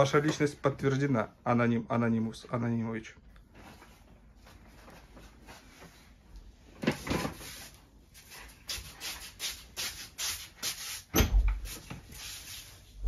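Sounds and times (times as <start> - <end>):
clothing rustle: 3.4 - 9.4.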